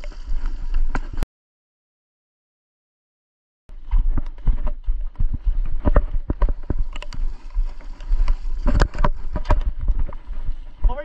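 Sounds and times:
footsteps crunching on gravel: 3.7s - 11.0s
wind rumble: 3.7s - 11.0s
microphone handling noise: 3.9s - 11.0s.

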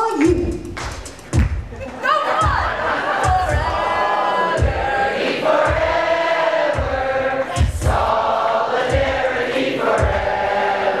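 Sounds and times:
hip-hop backing track: 0.2s - 11.0s
group singing a chant: 2.2s - 11.0s.

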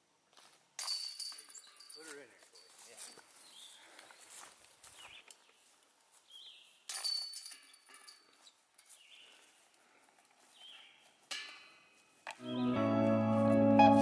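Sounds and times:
disc hitting metal chains: 0.8s - 2.2s, 6.9s - 9.0s
birds chirping faintly: 1.5s - 6.9s, 7.6s - 13.2s.

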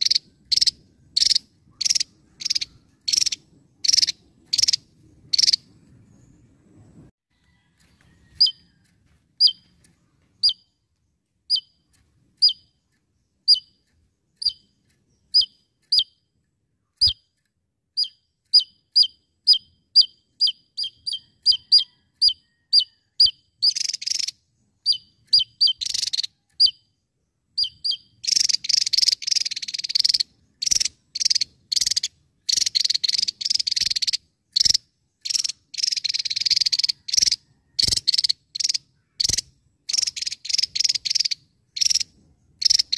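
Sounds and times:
harsh buzzy bird rattling: 0.0s - 5.6s, 23.6s - 26.8s, 27.6s - 42.9s.

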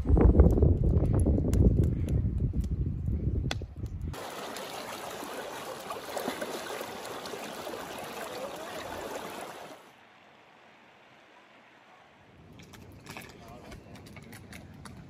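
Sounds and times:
child wading through water: 4.2s - 9.9s
creek rushing over rocks: 4.2s - 10.0s.

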